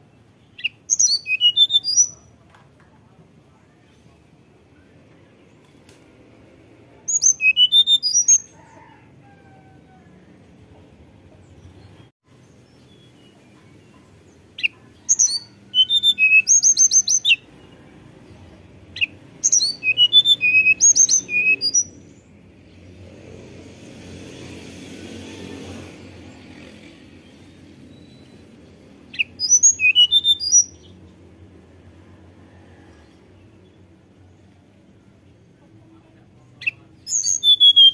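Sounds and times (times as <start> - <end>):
bird singing fluting whistles: 0.6 - 2.2, 7.1 - 8.5, 14.6 - 17.4, 19.0 - 22.0, 29.2 - 30.9, 36.6 - 37.9.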